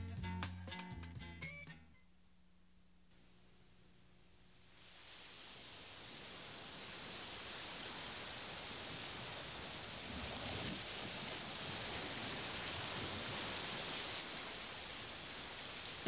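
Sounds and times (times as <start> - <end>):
ocean surf washing onto beach: 4.8 - 16.0.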